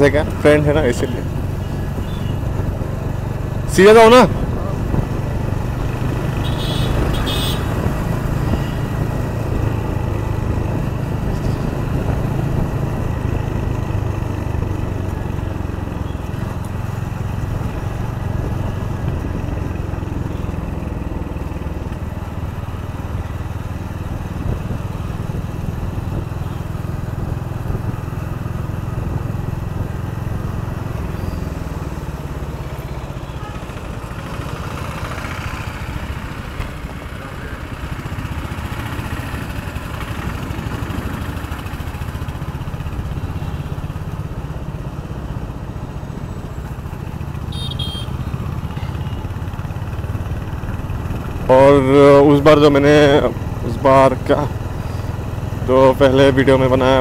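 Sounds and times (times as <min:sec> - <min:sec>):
motorcycle engine running: 0:00.0 - 0:57.0
wind and road rush: 0:00.0 - 0:57.0.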